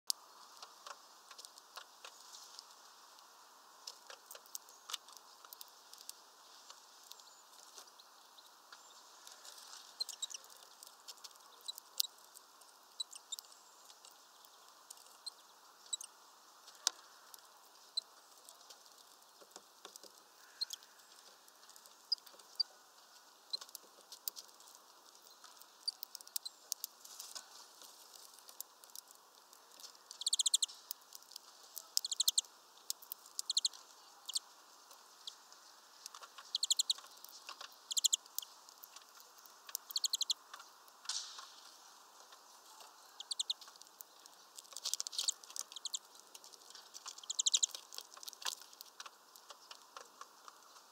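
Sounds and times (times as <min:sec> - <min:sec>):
birds pecking at feeder: 0:00.1 - 0:50.9
rapid ticking: 0:28.0 - 0:34.4, 0:43.2 - 0:50.5.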